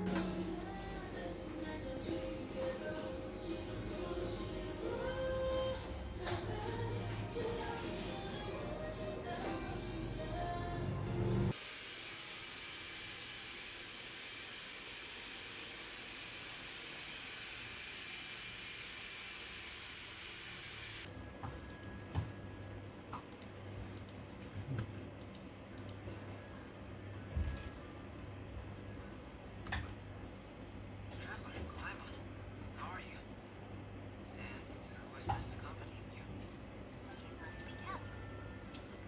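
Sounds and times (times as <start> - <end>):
low fan hum: 0.0 - 11.6
hair dryer hissing: 11.5 - 21.1.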